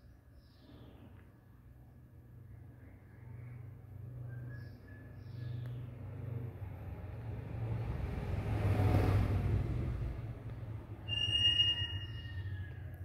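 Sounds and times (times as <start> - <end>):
vehicle passing: 3.2 - 12.7.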